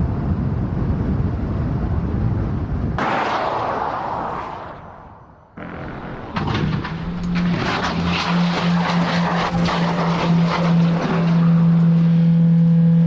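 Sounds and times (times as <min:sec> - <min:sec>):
metal scraping along road: 0:05.6 - 0:12.4
car crash impact: 0:06.0 - 0:11.7.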